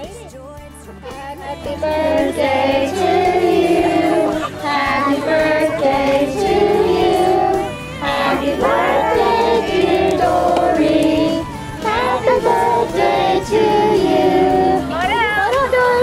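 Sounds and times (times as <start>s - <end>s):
music: 0.0s - 16.0s
several voices singing: 0.9s - 15.9s.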